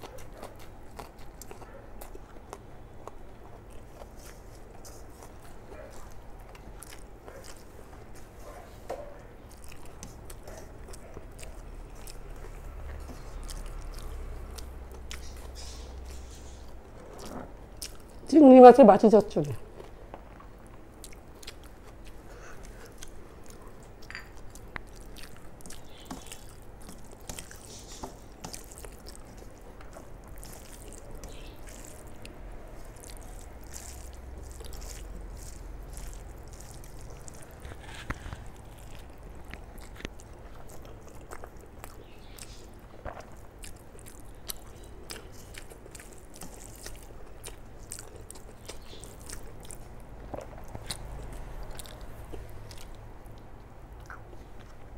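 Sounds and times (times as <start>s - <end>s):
chewing and wet mouth noises: 0.0s - 18.5s, 19.2s - 54.9s
rice squishing on steel plate: 25.8s - 39.4s.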